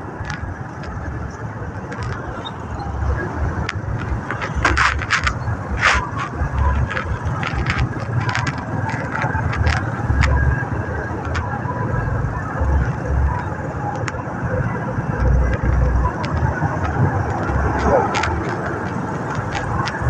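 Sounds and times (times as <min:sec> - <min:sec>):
road noise rumble: 0:00.0 - 0:20.0
wind buffeting microphone: 0:00.0 - 0:20.0.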